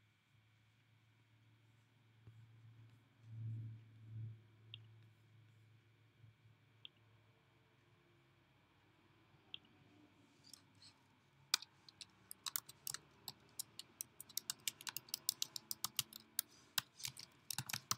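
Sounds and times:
typing on computer keyboard: 11.5s - 17.9s.

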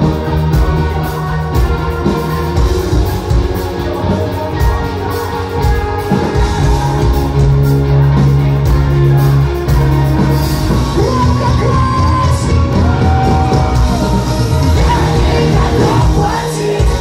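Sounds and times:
heavy rock band playing live: 0.0s - 17.0s
person singing and shouting: 10.7s - 17.0s.

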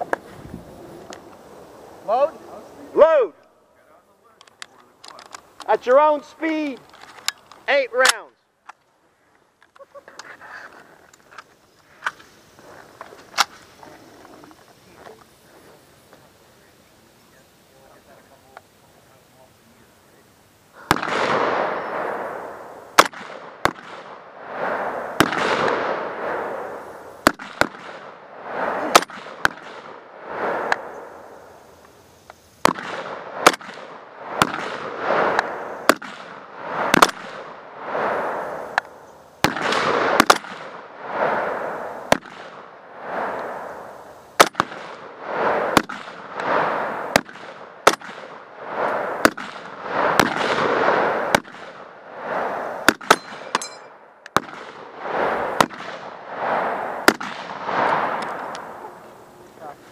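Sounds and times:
rifle shots with long echo: 20.8s - 31.8s, 32.6s - 59.7s.

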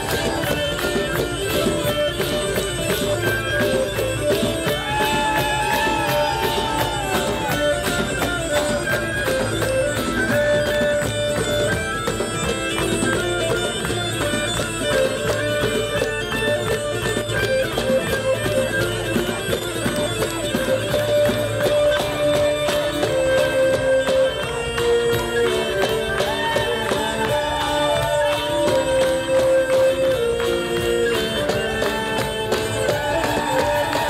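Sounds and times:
bagpipes melody: 0.0s - 34.0s
guitar: 0.0s - 34.0s
low bagpipe drone: 0.0s - 34.0s
percussion beat: 0.0s - 34.0s.

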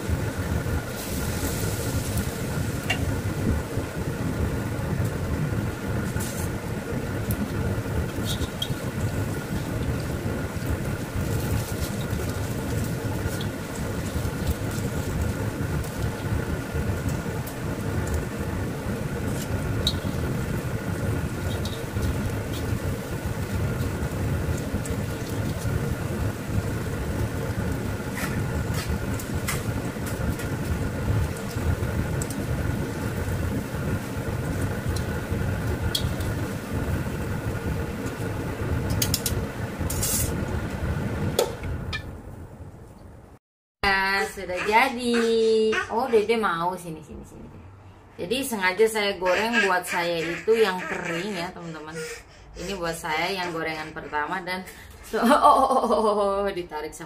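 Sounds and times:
fritters sizzling in hot oil: 0.0s - 41.3s
constant hum: 0.0s - 57.0s.

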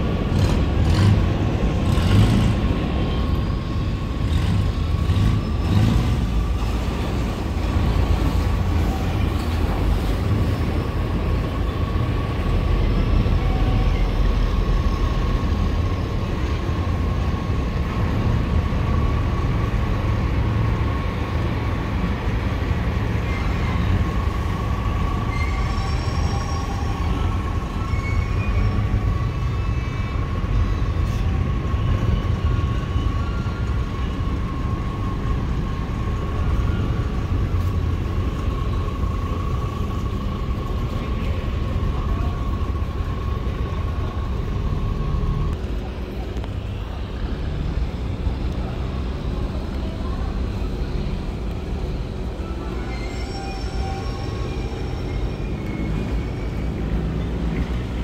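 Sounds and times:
barge diesel engine rumble: 0.0s - 58.0s.

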